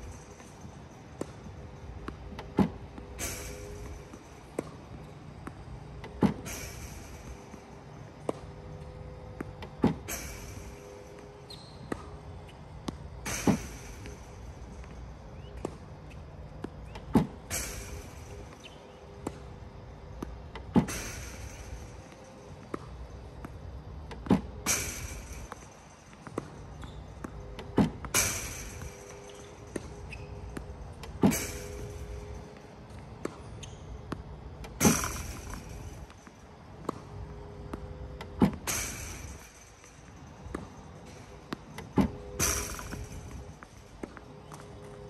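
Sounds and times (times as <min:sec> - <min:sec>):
faint motor hum: 0:00.0 - 0:45.0
ball machine launch pops: 0:34.7 - 0:36.2, 0:41.9 - 0:43.6.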